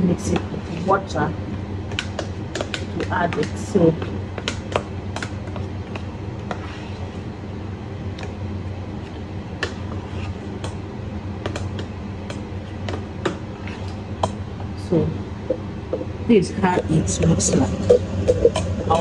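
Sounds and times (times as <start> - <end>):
steady low hum: 0.0 - 19.0
spoon stirring thick paste: 1.8 - 7.3, 9.0 - 14.4.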